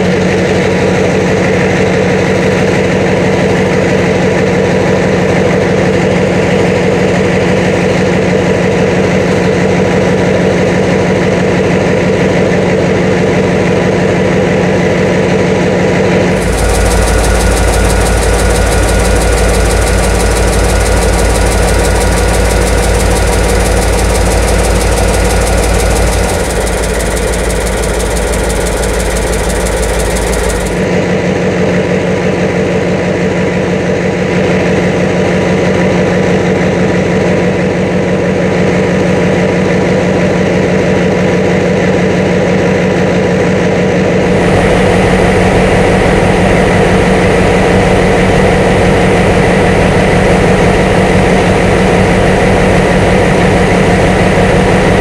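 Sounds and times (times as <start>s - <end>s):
diesel locomotive engine idling: 15.9s - 30.9s, 44.2s - 55.0s.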